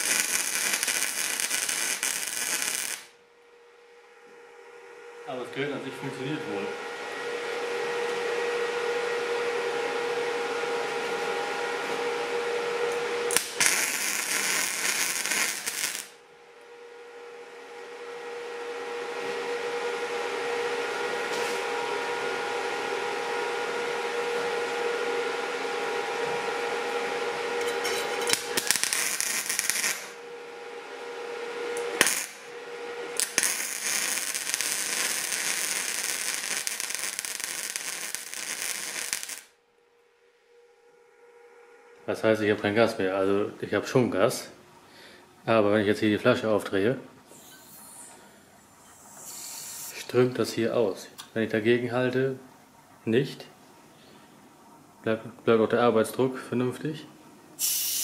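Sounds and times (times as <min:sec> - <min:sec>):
welding arc crackling: 0:00.0 - 0:03.2, 0:13.3 - 0:16.2, 0:27.8 - 0:30.2, 0:31.8 - 0:32.5, 0:33.2 - 0:39.6
steady hum: 0:00.0 - 0:58.0.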